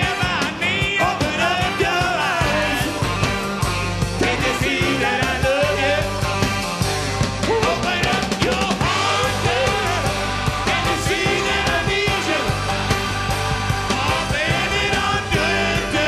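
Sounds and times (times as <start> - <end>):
rock band playing: 0.0 - 16.0
person singing: 7.4 - 12.6, 13.9 - 16.0.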